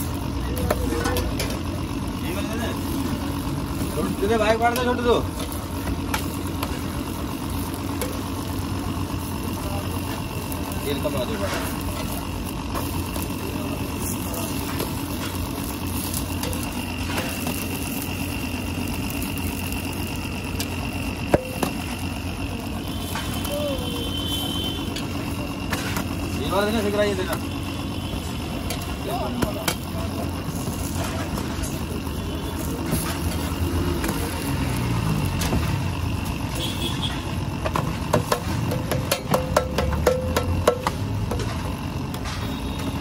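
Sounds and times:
griddle low rumble: 0.0 - 43.0
metal spatula scraping griddle: 10.9 - 18.3, 24.8 - 27.4, 29.6 - 34.5
metal spatula tapping: 38.1 - 41.0.

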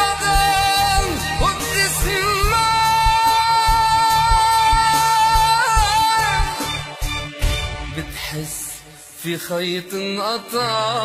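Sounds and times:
steady beat: 0.0 - 8.5
ornamented pop melody: 0.0 - 11.0.

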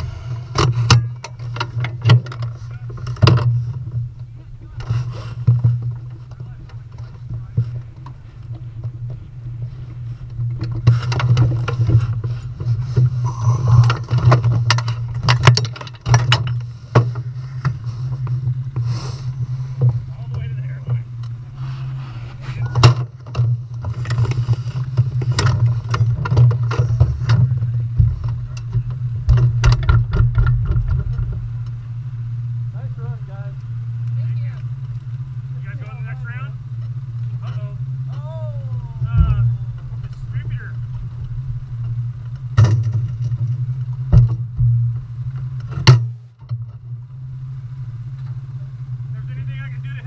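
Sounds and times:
fabric scraping and thumping camera: 0.0 - 31.6, 38.7 - 45.0
low engine hum: 0.0 - 50.0.

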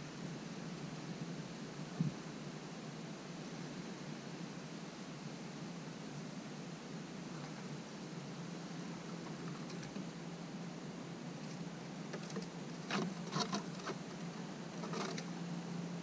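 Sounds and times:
claws scratching on wooden boards: 12.2 - 14.1, 14.8 - 15.3.

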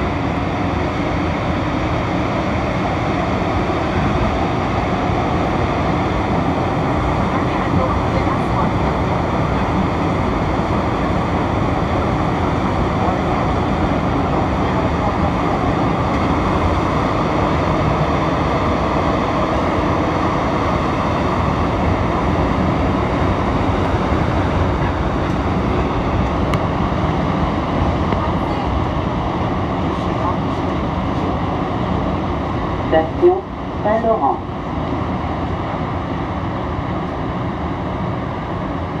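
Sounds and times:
metro train running rumble: 0.0 - 39.0.

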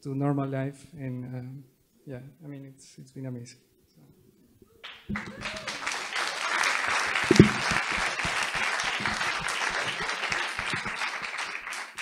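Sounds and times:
audience applauding: 4.8 - 12.0
short loud thump: 7.2 - 8.4.

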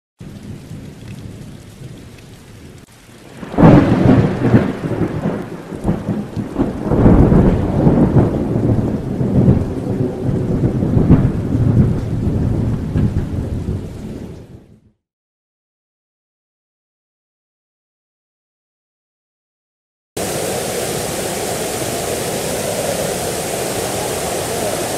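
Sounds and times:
rain falling: 0.2 - 14.7, 20.2 - 24.9
thunder rumbling: 0.2 - 14.7, 20.2 - 24.9.

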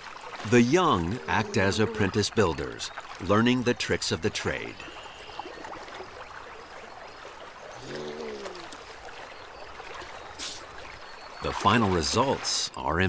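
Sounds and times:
water trickling and lapping: 0.0 - 13.0.

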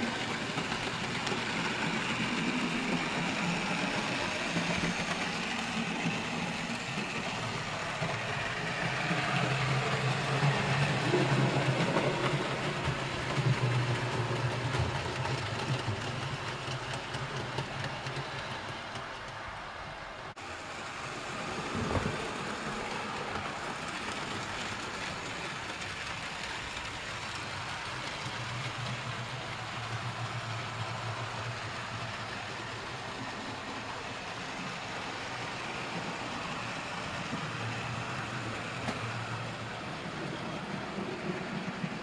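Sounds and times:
wheels rumbling on rails: 0.0 - 42.0.

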